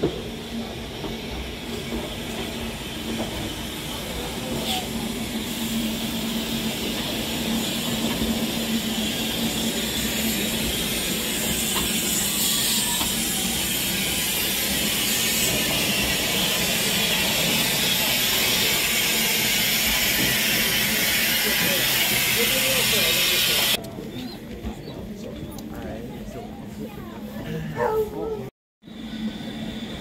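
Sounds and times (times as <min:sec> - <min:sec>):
steam locomotive hissing: 0:00.0 - 0:23.8.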